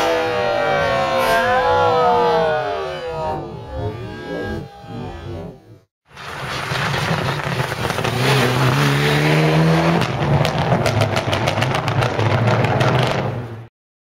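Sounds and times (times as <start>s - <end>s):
rapid sharp cracks: 6.1s - 8.9s, 10.0s - 13.4s.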